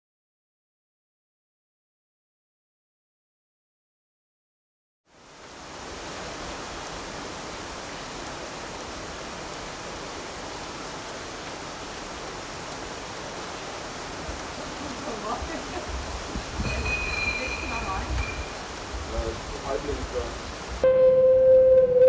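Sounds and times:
steady hiss: 5.1s - 21.9s.

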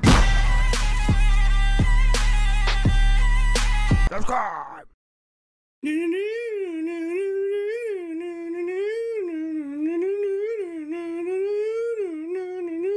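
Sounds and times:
person humming: 5.8s - 12.9s.

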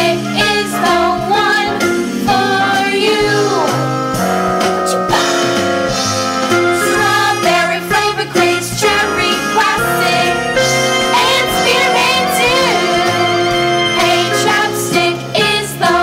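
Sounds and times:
women singing pop song: 0.0s - 4.0s, 6.8s - 13.2s, 14.0s - 16.0s
instrumental backing track: 0.0s - 16.0s.

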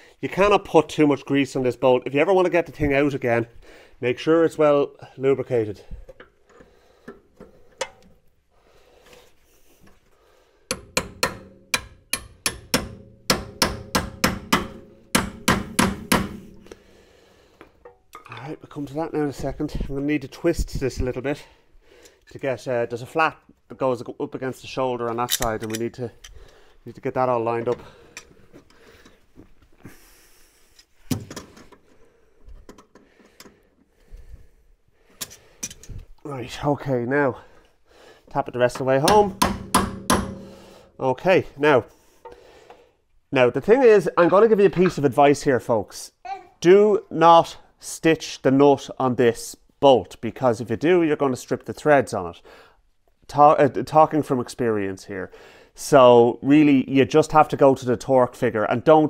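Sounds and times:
hammer striking steel bolt: 10.7s - 16.7s, 39.1s - 40.6s.

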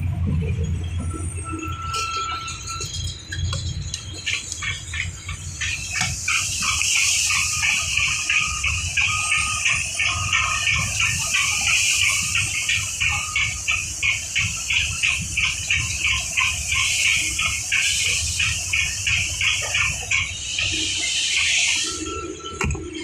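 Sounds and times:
machinery hiss and rumble: 0.0s - 23.0s
rapid even chirping: 0.6s - 23.0s.

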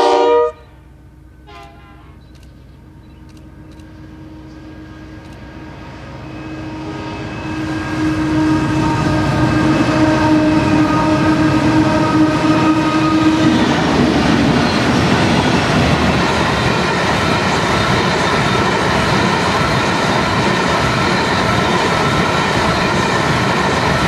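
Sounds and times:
locomotive engine drone: 0.0s - 24.0s
train wheels clattering on rails: 9.2s - 24.0s.

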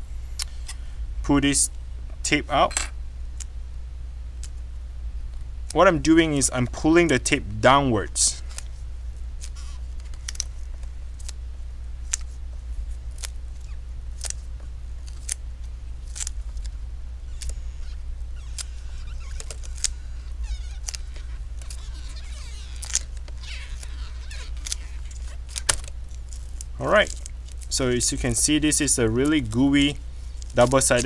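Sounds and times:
low steady hum: 0.0s - 31.0s
adhesive tape being pulled: 9.4s - 11.4s, 12.0s - 15.4s, 16.0s - 27.7s, 30.3s - 31.0s.

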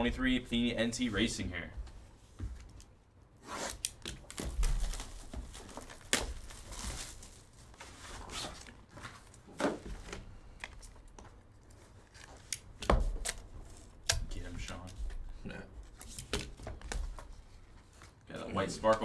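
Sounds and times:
plastic wrap tearing and crinkling: 3.4s - 9.4s.

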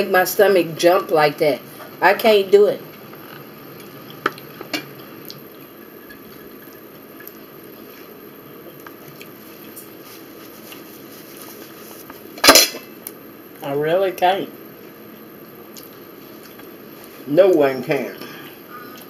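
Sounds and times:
wet chewing: 8.7s - 11.8s.

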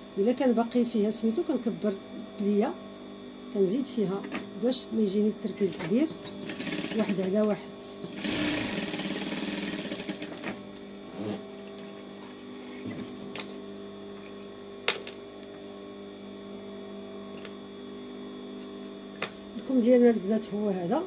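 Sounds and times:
steady electric hum: 0.0s - 21.0s
sewing machine stitching: 6.4s - 7.2s, 8.1s - 10.5s.

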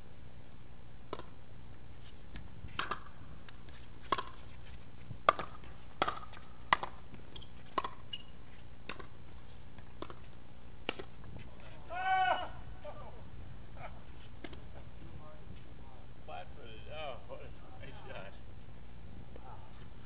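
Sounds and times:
pickleball hitting paddles: 1.1s - 1.4s, 2.3s - 11.8s.

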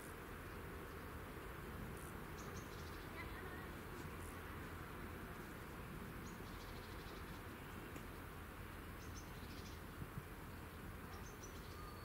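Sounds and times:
steady low hiss: 0.0s - 12.0s
faint high chirps: 11.1s - 12.0s.

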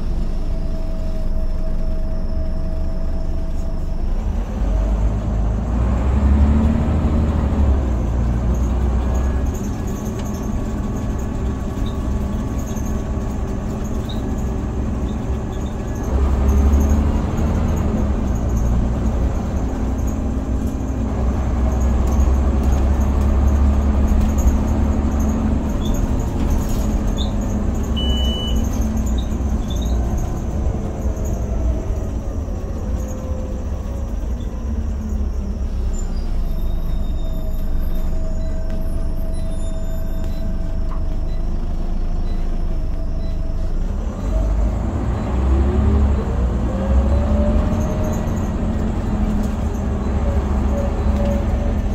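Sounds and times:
bus engine and road rumble: 0.0s - 51.9s
short high beep: 28.0s - 28.6s.

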